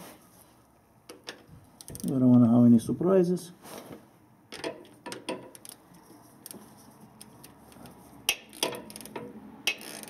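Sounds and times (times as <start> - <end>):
hand ratchet clicking: 7.2 - 10.0.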